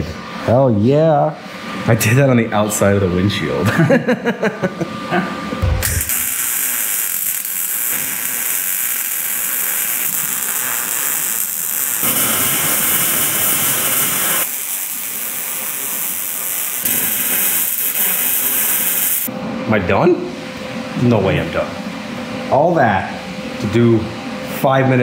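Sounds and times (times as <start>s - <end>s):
welding arc crackling and hissing: 5.6s - 19.3s.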